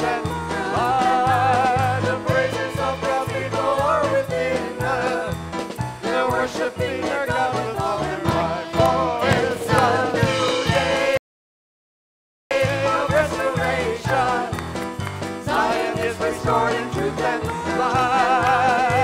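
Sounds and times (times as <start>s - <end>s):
people singing: 0.0s - 11.2s, 12.5s - 19.0s
worship band with keyboards: 0.0s - 11.2s, 12.5s - 19.0s.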